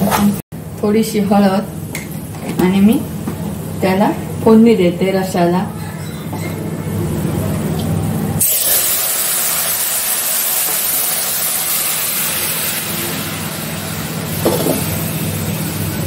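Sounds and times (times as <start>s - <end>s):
loud sizzling hiss: 8.4s - 16.0s
spices frying in oil: 8.4s - 16.0s.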